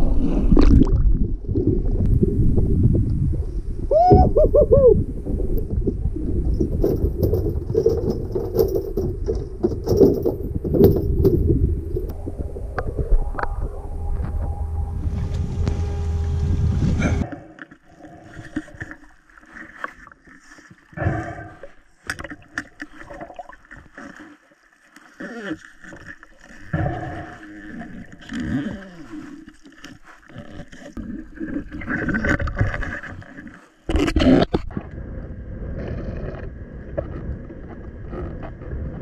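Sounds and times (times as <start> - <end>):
underwater gurgling and sloshing: 0.0 - 39.0
underwater knocks: 5.6 - 14.5.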